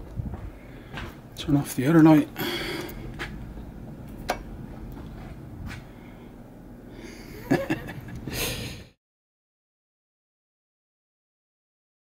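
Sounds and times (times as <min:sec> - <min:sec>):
breath-like rush of noise: 0:02.4 - 0:03.3.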